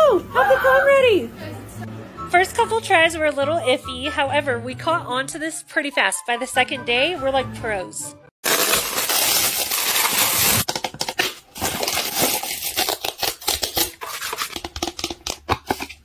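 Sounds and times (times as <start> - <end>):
plastic wrapping crinkling: 8.4 - 16.0.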